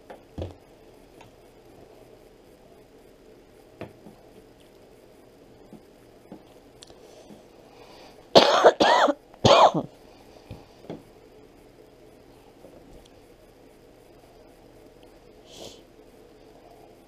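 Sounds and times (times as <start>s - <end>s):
person coughing: 8.4s - 9.9s.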